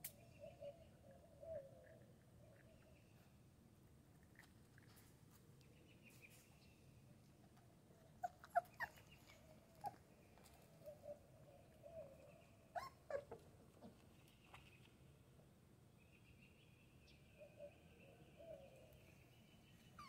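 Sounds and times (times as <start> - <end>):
puppies whimpering and yipping: 8.2 - 10.0, 12.7 - 13.4.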